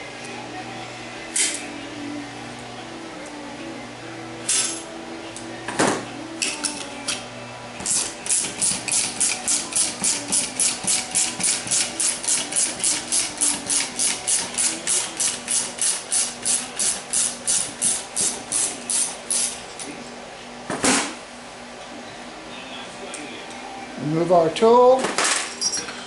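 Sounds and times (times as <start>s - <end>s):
ratchet wrench clicking: 7.9s - 19.6s.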